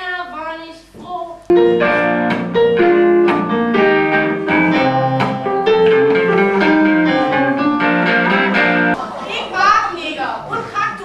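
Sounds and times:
guitar and keyboard music: 1.5s - 9.0s.

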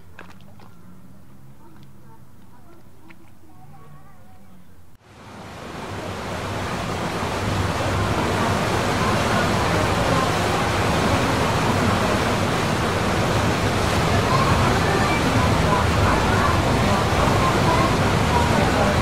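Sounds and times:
water churning in boat wake: 5.0s - 19.0s.

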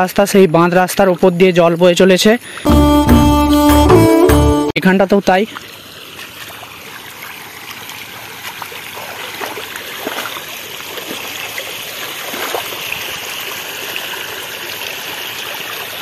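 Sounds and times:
floodwater rushing and splashing: 5.5s - 16.0s.

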